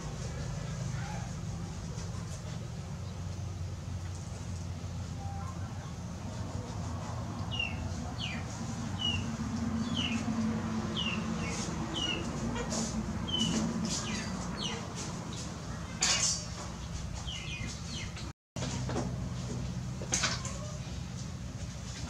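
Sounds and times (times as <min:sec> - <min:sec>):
bird chirping: 0:07.4 - 0:10.3, 0:10.9 - 0:16.0, 0:16.8 - 0:18.2.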